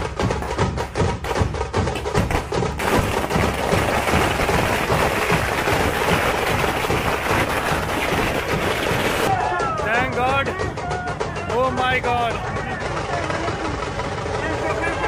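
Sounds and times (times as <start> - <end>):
procession drumming: 0.1 - 14.2
firecrackers crackling: 2.0 - 9.3.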